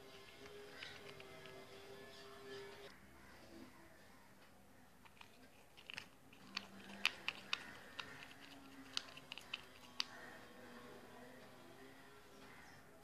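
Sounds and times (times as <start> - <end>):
stick clicking against plastic pot: 5.0 - 10.2.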